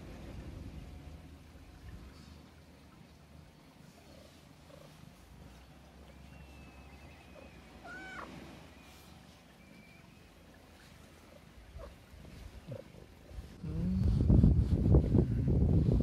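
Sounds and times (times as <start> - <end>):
cat purring: 3.6 - 7.9, 10.7 - 14.7
cat crying: 7.8 - 8.3.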